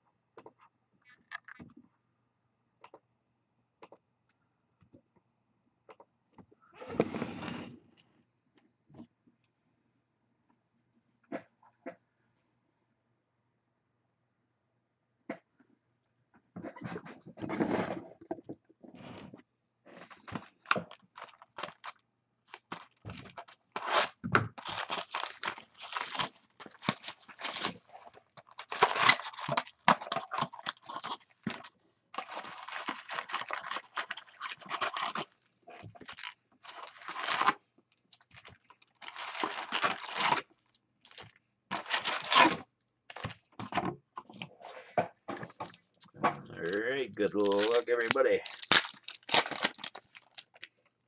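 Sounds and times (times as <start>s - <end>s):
plastic shrink-wrap tearing: 22.5s - 35.4s, 36.0s - 43.3s, 46.6s - 50.7s.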